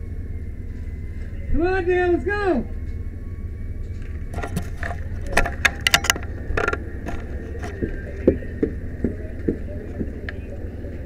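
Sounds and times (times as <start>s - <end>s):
low engine rumble: 0.0s - 11.0s
gear clinking and rattling: 3.8s - 8.1s
sharp clicks and knocks: 4.0s - 8.0s.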